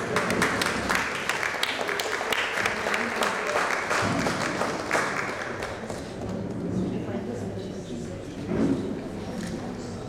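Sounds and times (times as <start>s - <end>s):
group clapping in applause: 0.0s - 6.6s.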